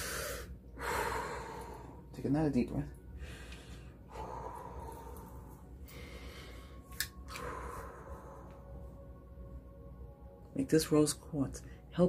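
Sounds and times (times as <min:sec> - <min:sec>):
man breathing deeply: 0:00.0 - 0:02.1, 0:03.1 - 0:09.0.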